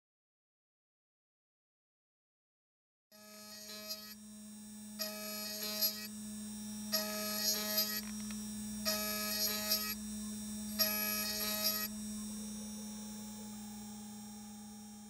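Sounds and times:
high cutting whine: 0:03.2 - 0:15.0
milling motor humming: 0:03.2 - 0:15.0.

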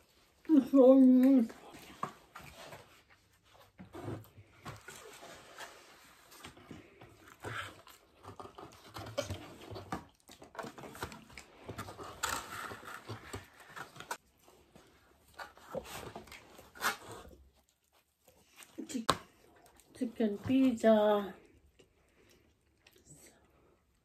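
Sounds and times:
chewing and mouth noises: 0:21.4 - 0:24.0.

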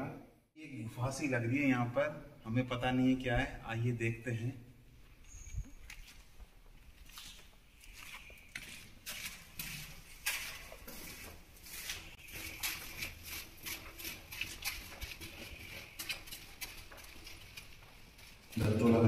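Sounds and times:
footsteps on stone stairs: 0:05.1 - 0:19.0.

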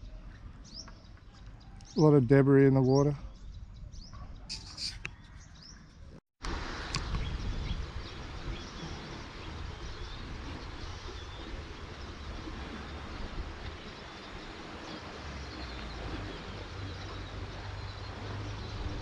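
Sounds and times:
faint bird chirps: 0:03.0 - 0:05.9
river rushing: 0:06.4 - 0:19.0.

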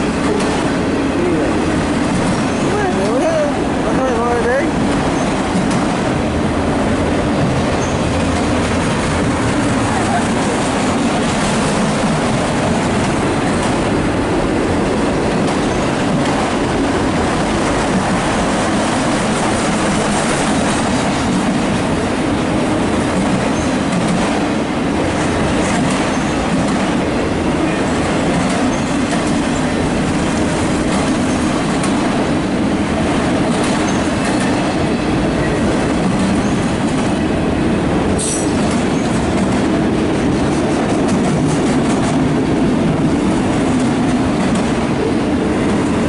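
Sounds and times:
freight train rumbling past: 0:00.0 - 0:46.0.

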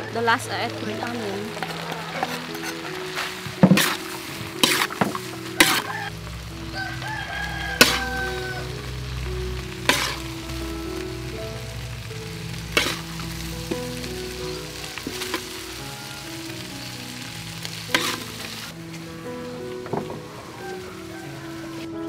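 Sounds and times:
food sizzling in a wok: 0:00.0 - 0:22.0
spatula clanking on pan: 0:03.6 - 0:04.0, 0:04.6 - 0:06.0, 0:07.8 - 0:08.2, 0:09.9 - 0:10.2, 0:12.8 - 0:13.0, 0:17.9 - 0:18.3.

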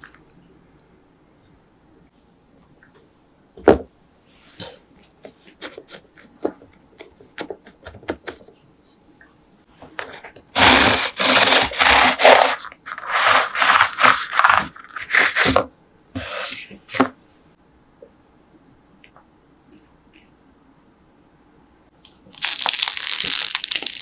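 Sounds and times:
knife sawing through crisp pastry: 0:10.6 - 0:15.5.

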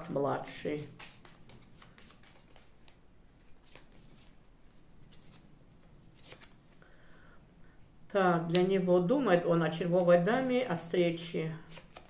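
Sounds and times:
playing cards shuffled by hand: 0:00.0 - 0:06.8, 0:11.7 - 0:12.0.

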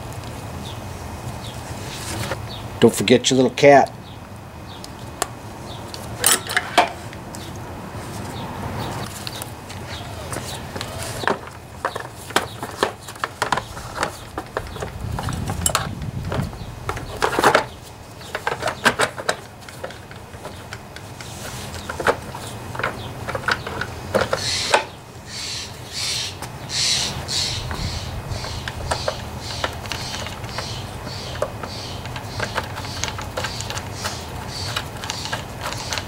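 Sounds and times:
hissy rasps: 0:24.3 - 0:36.0.

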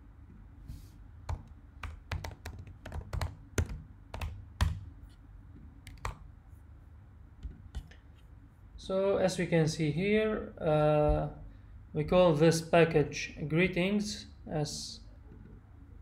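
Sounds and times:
computer keyboard typing: 0:01.3 - 0:04.8, 0:05.9 - 0:06.2.

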